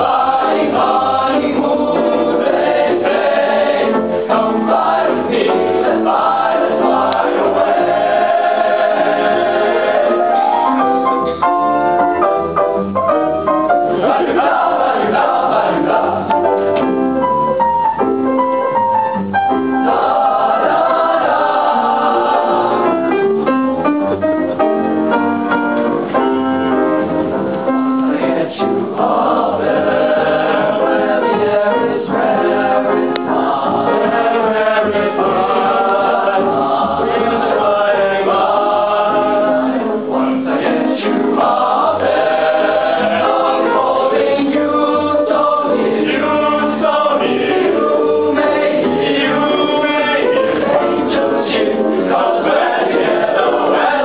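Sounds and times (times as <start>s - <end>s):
boys' choir singing: 0.0s - 10.7s, 13.8s - 16.7s, 19.8s - 23.1s, 27.9s - 54.0s.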